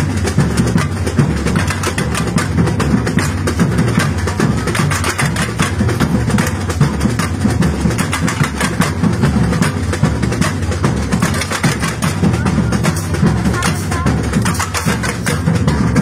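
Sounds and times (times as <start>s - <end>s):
bass drums: 0.0s - 16.0s
samba percussion ensemble: 0.0s - 16.0s.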